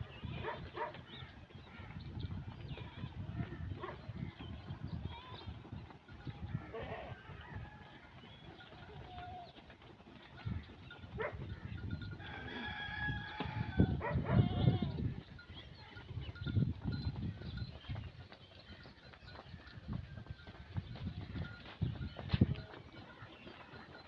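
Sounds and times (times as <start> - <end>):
hooves scuffing and thudding: 0.0 - 24.0
rooster crowing: 12.2 - 14.4.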